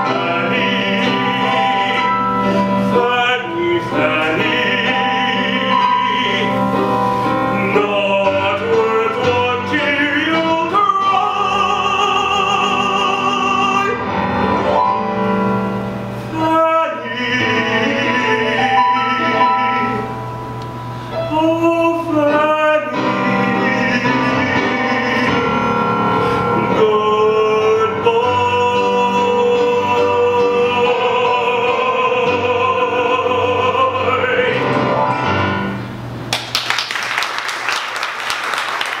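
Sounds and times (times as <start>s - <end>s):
man singing: 0.0s - 14.6s, 16.2s - 20.3s, 21.1s - 35.2s
piano accompaniment: 0.0s - 39.0s
audience applause: 36.3s - 39.0s.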